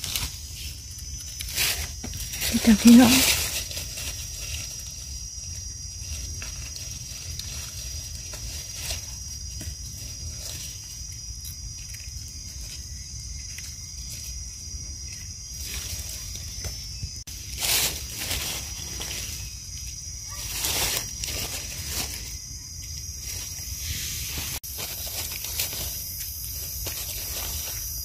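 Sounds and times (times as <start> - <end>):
dry leaves rustling: 0.0 - 28.0.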